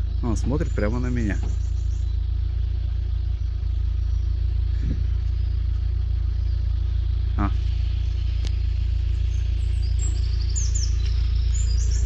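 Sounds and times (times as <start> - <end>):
car engine idling: 0.0 - 12.0
faint bird chirp: 0.0 - 12.0.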